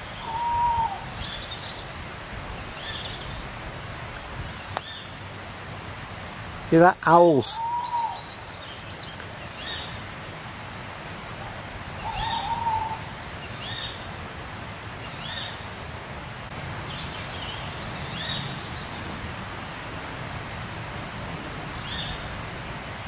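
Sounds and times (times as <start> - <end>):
owl hooting: 0.0 - 1.4, 7.0 - 8.5, 11.4 - 13.9.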